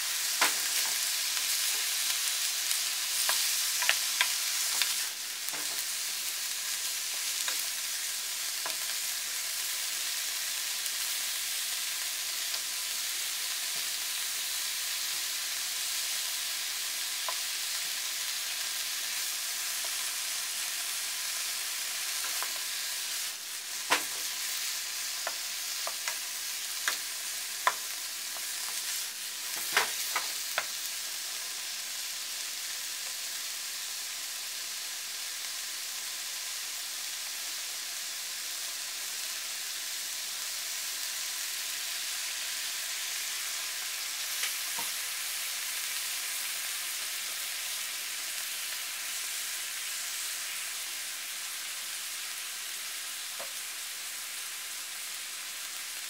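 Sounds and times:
meat and onion sizzling in pan: 0.0s - 56.0s.

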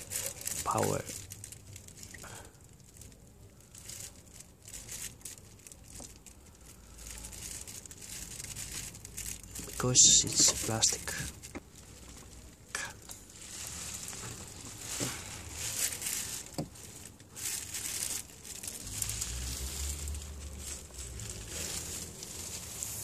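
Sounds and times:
hands rustling: 0.0s - 2.2s, 3.9s - 23.0s.

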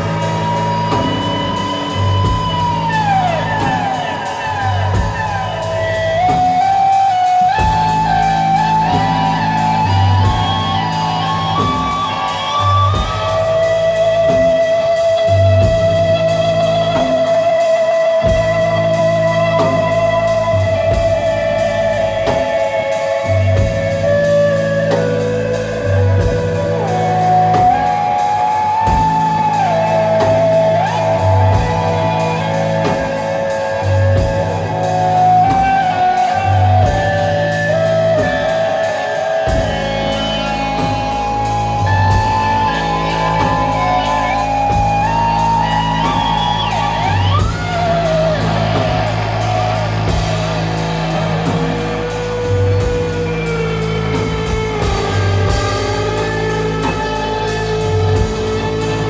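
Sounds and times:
sliding lead guitar: 0.0s - 59.0s
repeating bass line: 39.4s - 59.0s.

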